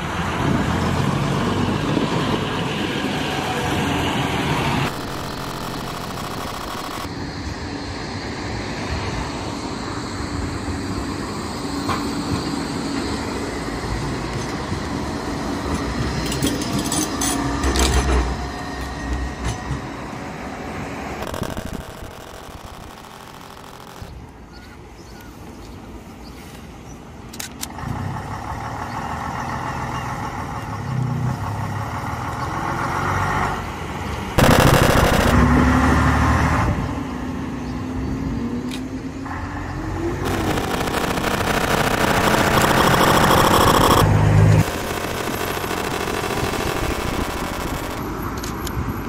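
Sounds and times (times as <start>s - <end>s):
diesel bus driving past: 27.8s - 34.4s.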